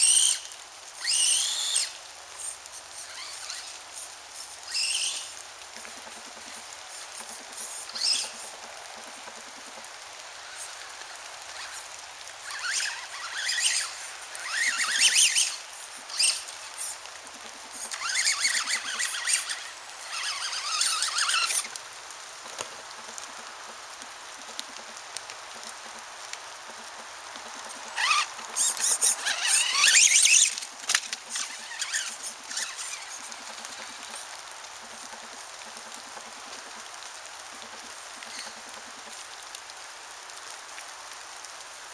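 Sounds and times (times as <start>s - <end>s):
toy car motor whine: 0.0s - 9.2s, 10.4s - 17.0s, 17.7s - 21.8s, 27.6s - 34.3s
tyres hissing on dirt: 0.0s - 41.9s.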